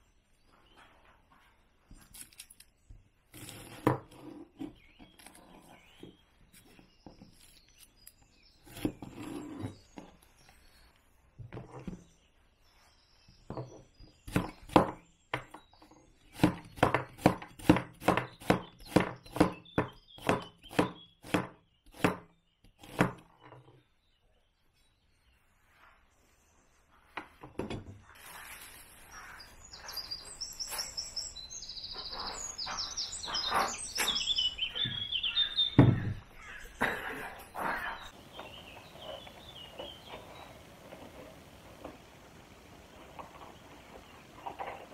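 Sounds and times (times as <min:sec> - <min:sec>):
small birds chirping: 0:00.0 - 0:44.9
steady background hiss: 0:38.1 - 0:44.9.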